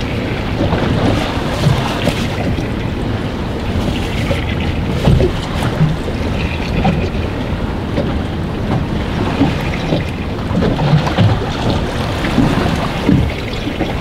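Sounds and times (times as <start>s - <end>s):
choppy sea: 0.0s - 14.0s
water slapping boat hull: 0.0s - 14.0s
wind buffeting microphone: 0.0s - 14.0s.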